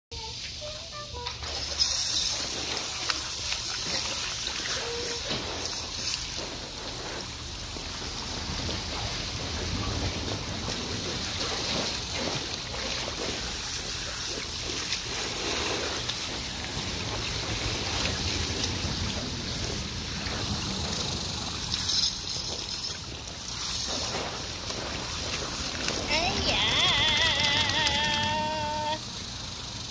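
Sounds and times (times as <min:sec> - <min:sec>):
hose water spraying and splashing: 0:00.1 - 0:29.9
wind rumble on microphone: 0:08.0 - 0:12.5, 0:16.0 - 0:21.8.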